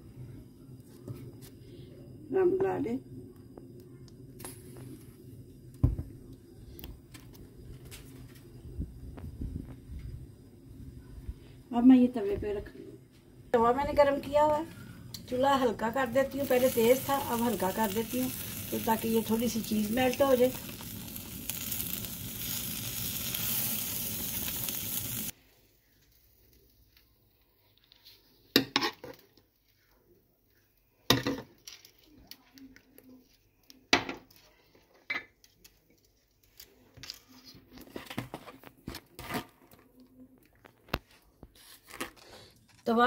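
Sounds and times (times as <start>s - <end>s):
burgers sizzling on a griddle: 14.8s - 25.4s.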